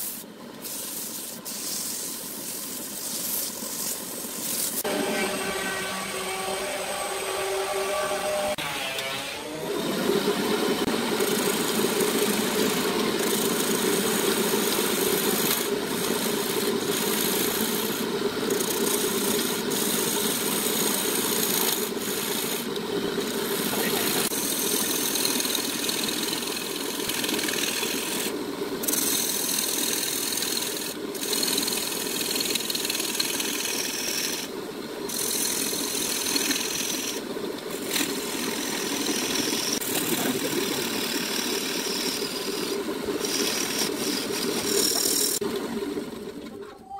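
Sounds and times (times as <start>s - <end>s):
wood lathe motor hum: 4.8s - 34.5s, 35.1s - 46.5s
turning tool scraping wood: 10.8s - 34.5s, 35.1s - 45.4s.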